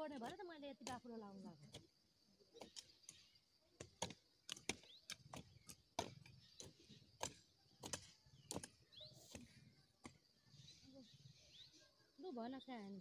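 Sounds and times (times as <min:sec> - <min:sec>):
hand hoes chopping soil: 0:00.0 - 0:10.3.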